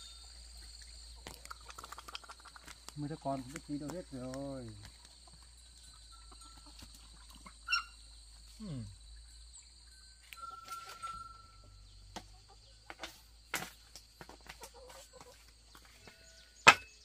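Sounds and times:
birds whistling and chirping: 7.6 - 8.1, 9.9 - 12.1.

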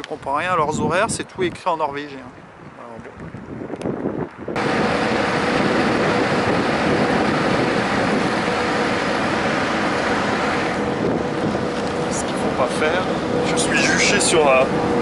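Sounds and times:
wind and water rushing along hull: 0.0 - 15.0
low engine hum: 4.4 - 15.0.

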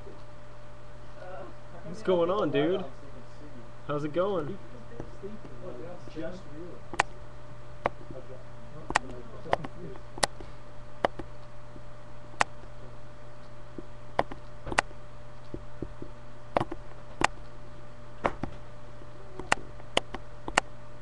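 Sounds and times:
steady low hum: 0.0 - 21.0
sharp clicks: 6.9 - 7.2, 8.9 - 11.5, 12.4 - 12.7, 14.1 - 17.6, 19.4 - 20.7.

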